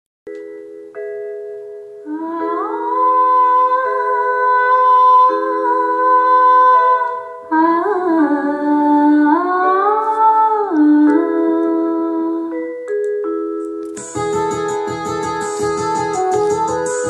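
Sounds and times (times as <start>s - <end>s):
song with sustained chords: 13.8s - 17.0s.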